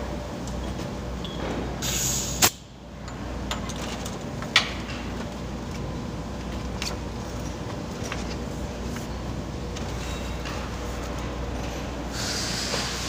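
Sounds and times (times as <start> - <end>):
low machine hum: 0.0 - 13.0
compressed air hissing: 1.8 - 2.6, 12.1 - 13.0.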